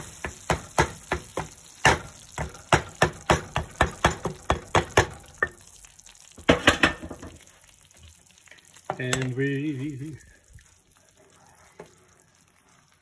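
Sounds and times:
utensil knocking and scraping a pan: 0:00.0 - 0:05.6, 0:06.4 - 0:07.4.

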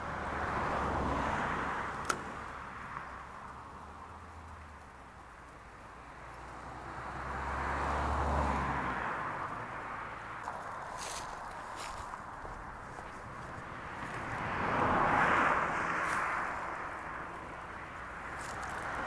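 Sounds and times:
road traffic passing: 0:00.0 - 0:19.0
sharp click: 0:02.0 - 0:02.3.

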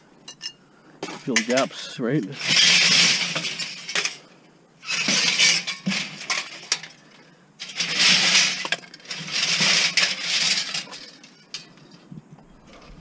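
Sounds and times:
scrap metal clattering: 0:00.4 - 0:11.9.

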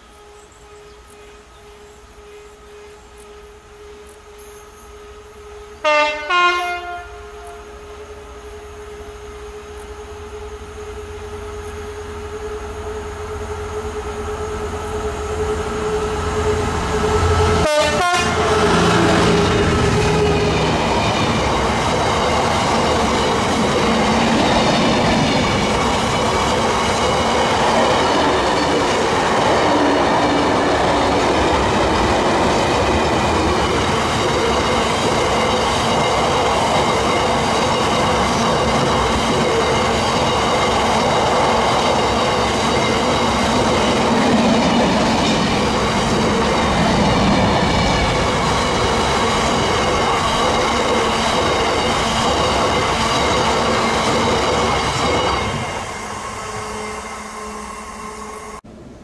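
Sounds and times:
diesel locomotive engine passing: 0:00.0 - 0:59.0
wagons rumbling over rails: 0:04.9 - 0:59.0
high wheel squeal: 0:18.4 - 0:58.6.

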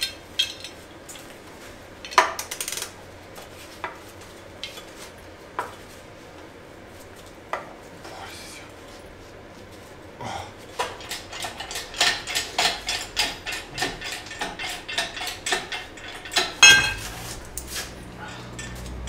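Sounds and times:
metallic clicks and clanks: 0:02.0 - 0:03.0, 0:10.8 - 0:19.0
low steady hum: 0:03.0 - 0:19.0.

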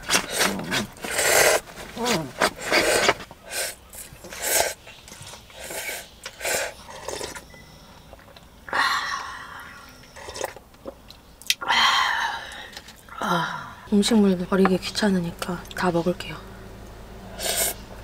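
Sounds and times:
person slurping noodles: 0:00.0 - 0:04.8, 0:05.5 - 0:07.4, 0:10.2 - 0:10.6, 0:17.3 - 0:17.8
person sipping broth: 0:02.6 - 0:07.4, 0:09.2 - 0:10.6, 0:17.3 - 0:17.8.

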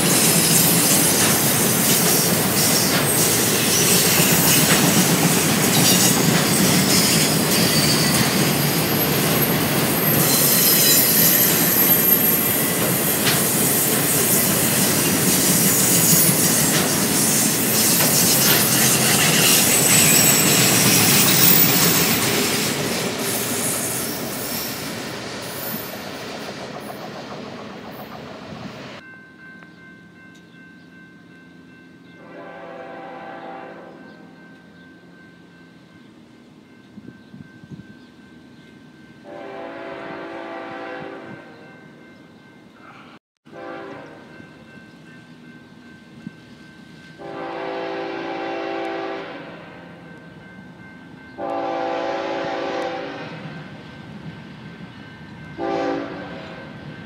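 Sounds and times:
train cars rumbling on rails: 0:00.0 - 0:57.0
high-pitched wheel squeal: 0:10.0 - 0:14.7, 0:15.5 - 0:22.2.

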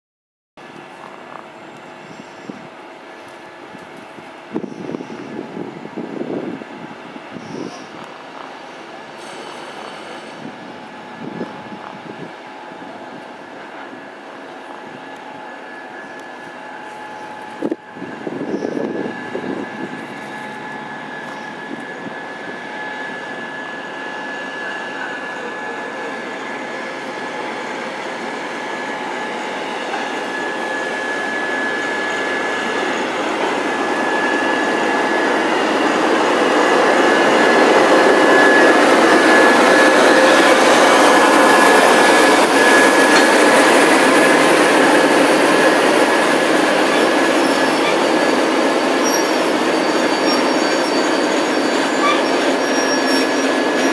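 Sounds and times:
diesel locomotive passing: 0:00.6 - 0:53.9
high-pitched brake squeal: 0:01.9 - 0:02.7, 0:04.5 - 0:05.4, 0:08.7 - 0:10.5, 0:14.9 - 0:53.9.

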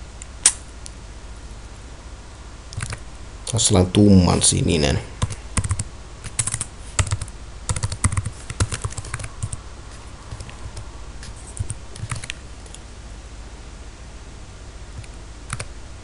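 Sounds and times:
typing on computer keyboard: 0:02.8 - 0:03.0, 0:05.2 - 0:09.6, 0:10.3 - 0:10.8, 0:11.6 - 0:12.4, 0:15.0 - 0:15.7.

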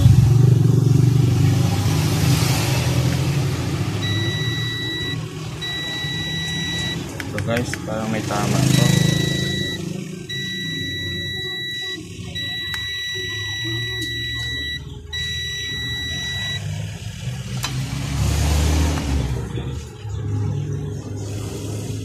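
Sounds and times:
multimeter continuity beeps: 0:04.0 - 0:07.1, 0:08.6 - 0:16.6.

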